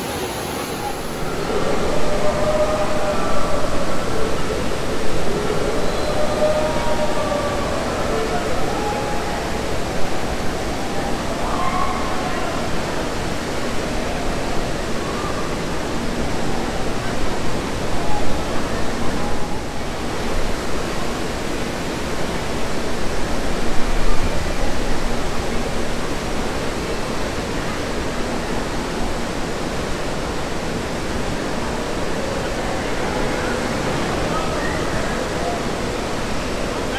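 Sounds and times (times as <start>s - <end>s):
faint voices: 0.0s - 36.9s
rushing splashing water: 0.0s - 36.9s.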